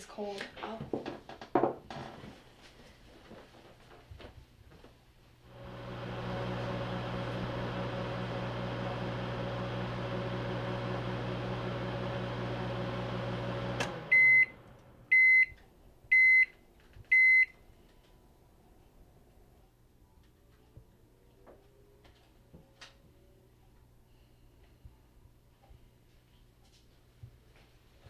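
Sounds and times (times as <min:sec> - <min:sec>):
microwave oven humming: 0:05.5 - 0:15.6
microwave click: 0:06.7 - 0:14.6.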